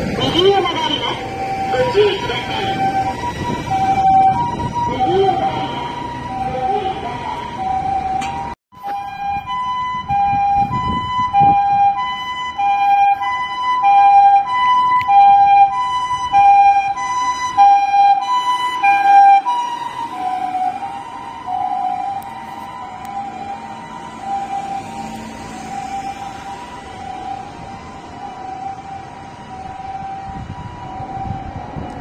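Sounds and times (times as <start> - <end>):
ambulance two-tone siren: 0.0 - 32.0.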